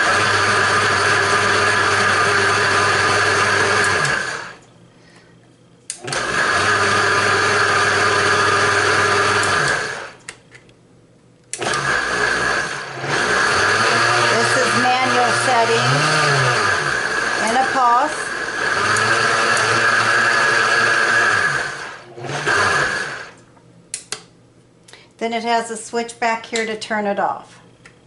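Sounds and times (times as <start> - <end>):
blender motor running: 0.0 - 4.6, 6.0 - 10.2, 11.6 - 23.4.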